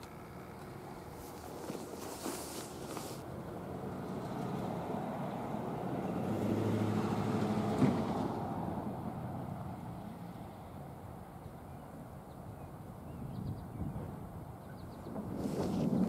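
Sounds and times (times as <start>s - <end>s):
train wheels rumbling on rails: 15.0s - 16.0s.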